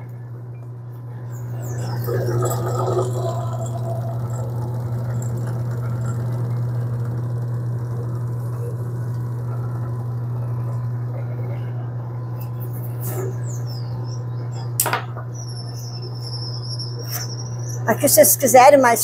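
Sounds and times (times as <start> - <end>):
pasta roller humming: 1.3 - 12.3.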